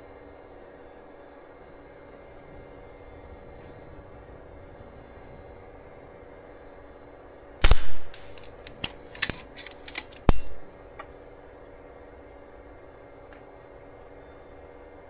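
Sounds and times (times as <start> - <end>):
air rifle shot crack: 7.6 - 8.4.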